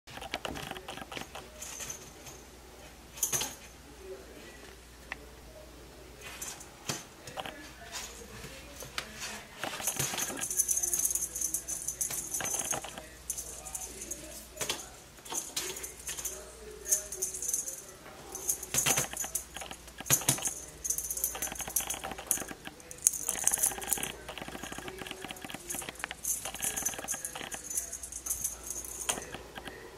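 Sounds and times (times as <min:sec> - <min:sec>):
cat toy jingling and rattling: 0:09.6 - 0:29.6.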